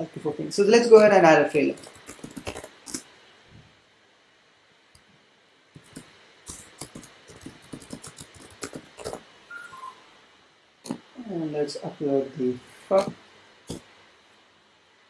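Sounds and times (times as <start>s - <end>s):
typing on a keyboard: 1.8s - 3.0s, 5.8s - 9.2s.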